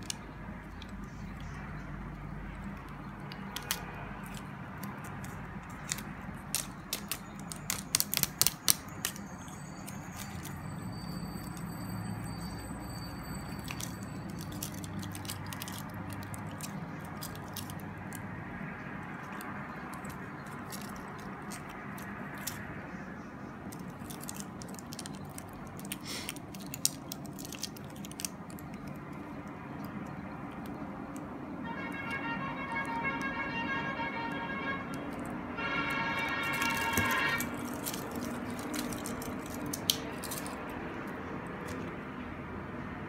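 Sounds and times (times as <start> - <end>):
watch bracelet clicking: 2.6 - 10.6, 36.5 - 41.9.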